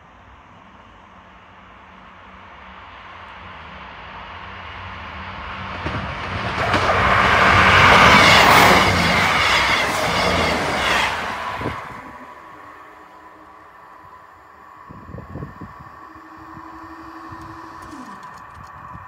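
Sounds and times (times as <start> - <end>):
diesel train passing: 0.0 - 19.0
wheels clacking over rail joints: 5.4 - 14.8.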